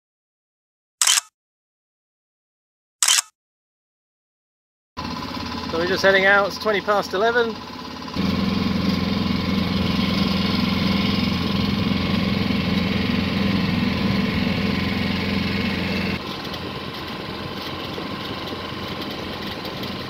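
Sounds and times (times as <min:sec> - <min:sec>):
boat engine running: 0:05.0 - 0:20.0.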